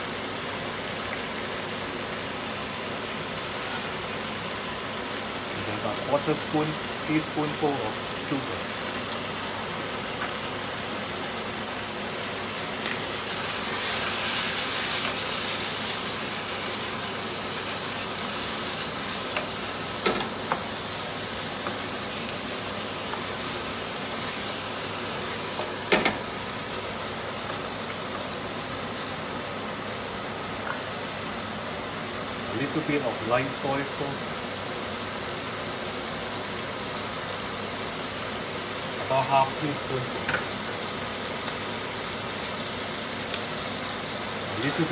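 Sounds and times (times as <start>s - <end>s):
chicken wings sizzling in wok: 0.0s - 44.9s.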